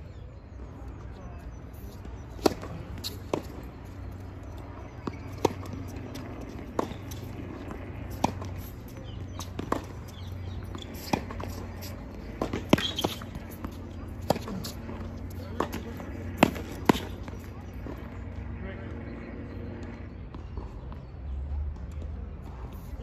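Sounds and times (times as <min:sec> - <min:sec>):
tennis ball bouncing: 0:02.0 - 0:18.4
tennis racket striking ball: 0:05.0 - 0:17.3.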